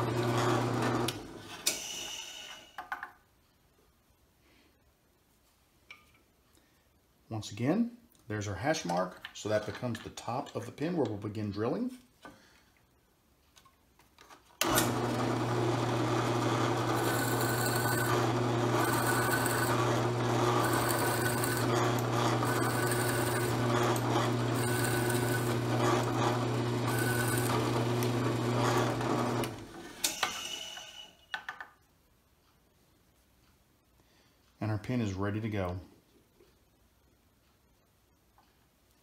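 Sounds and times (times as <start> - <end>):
drill press boring into wood: 0.0 - 2.8, 14.6 - 31.2.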